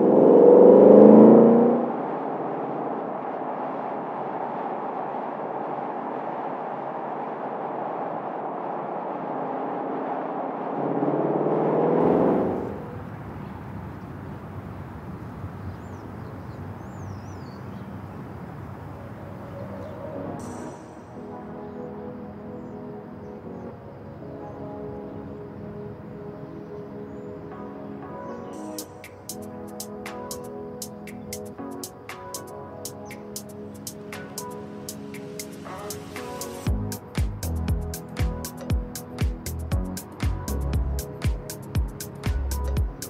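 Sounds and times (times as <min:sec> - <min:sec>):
car exhaust roaring: 0:00.0 - 0:03.0
engine and road noise: 0:00.0 - 0:21.2, 0:32.9 - 0:43.0.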